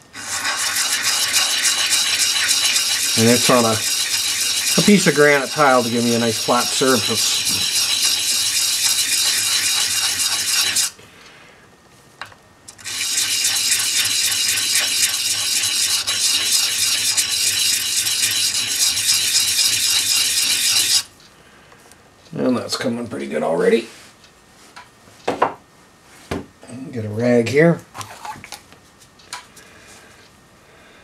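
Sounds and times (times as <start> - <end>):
metal part scratching on sandpaper: 0.2 - 10.9, 12.8 - 21.1.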